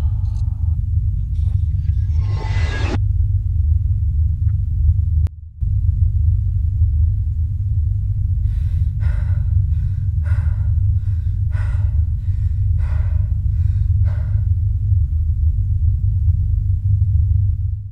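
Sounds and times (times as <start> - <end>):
steady low drone: 0.0 - 17.9
man gasping breaths: 8.4 - 14.7.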